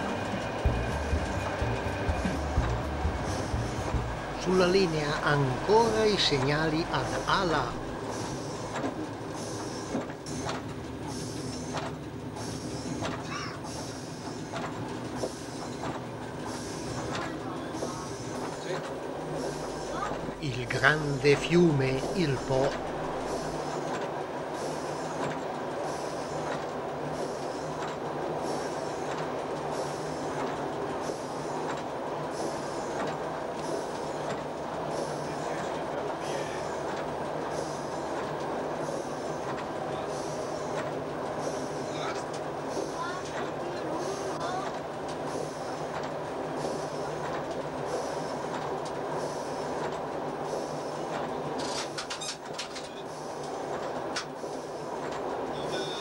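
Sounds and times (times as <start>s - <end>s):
diesel engine drone: 0.0s - 44.4s
wheel and rail rumble: 0.0s - 56.0s.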